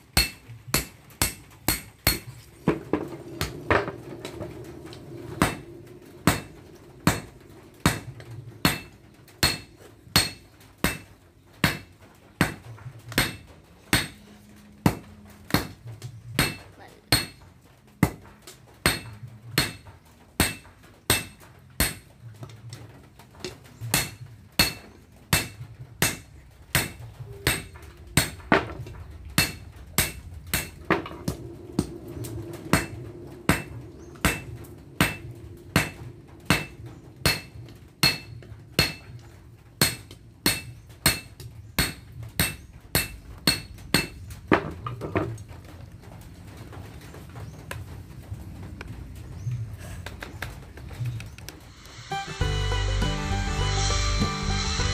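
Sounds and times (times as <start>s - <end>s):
hammer clanging on anvil: 16.4s - 17.4s, 35.8s - 39.2s.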